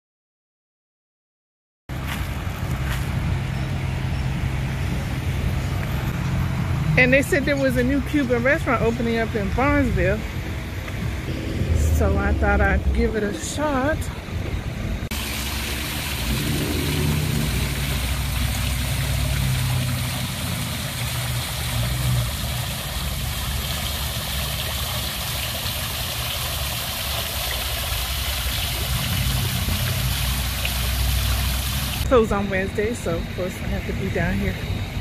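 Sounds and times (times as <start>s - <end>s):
fountain water splashing: 2.0s - 10.4s, 15.1s - 34.6s
low rumble: 9.9s - 21.4s.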